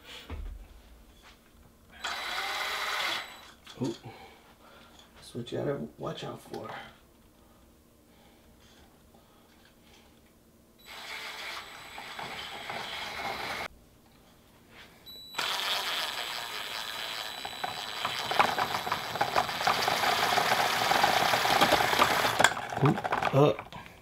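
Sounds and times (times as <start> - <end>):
cordless drill whining: 2.0 - 3.6, 10.8 - 13.7, 15.1 - 22.6
spool clattering: 15.4 - 23.8.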